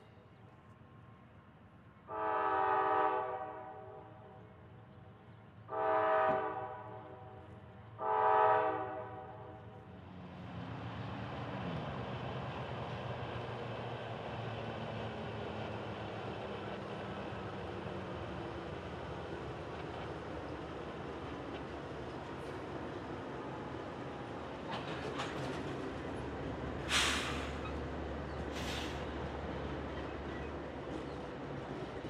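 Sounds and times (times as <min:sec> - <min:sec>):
diesel train rumbling: 0:00.0 - 0:32.0
locomotive air horn blasts: 0:02.1 - 0:04.0, 0:05.7 - 0:07.4, 0:08.0 - 0:09.5.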